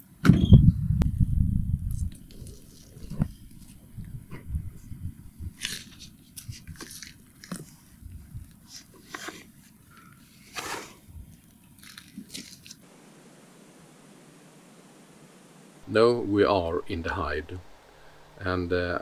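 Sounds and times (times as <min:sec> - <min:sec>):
faint hiss: 0:01.8 - 0:19.0
plastic bag rustling: 0:02.0 - 0:12.9.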